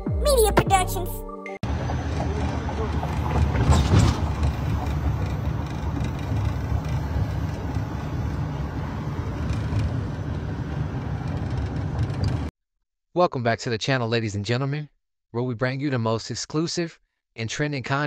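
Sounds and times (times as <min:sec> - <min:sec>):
car cabin rumble: 0:01.7 - 0:12.5.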